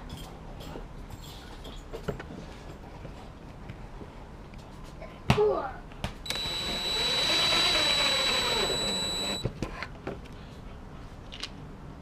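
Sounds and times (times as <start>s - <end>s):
cordless drill driving a screw: 6.3s - 9.5s.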